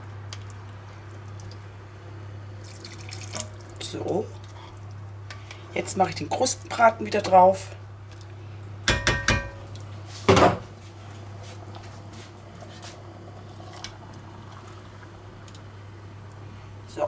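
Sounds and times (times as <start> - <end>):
steady low hum: 0.0 - 17.0
metal cookware clattering: 8.9 - 9.6.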